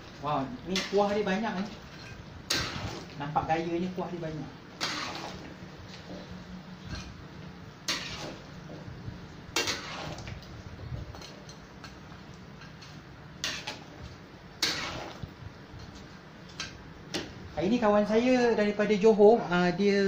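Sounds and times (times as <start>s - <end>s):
spatula scraping metal wok: 0.7s - 8.9s, 9.5s - 16.8s.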